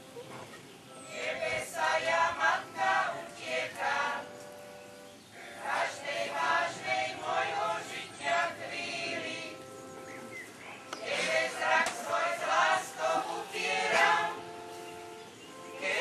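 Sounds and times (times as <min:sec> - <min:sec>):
choir singing a hymn: 0:00.3 - 0:16.0.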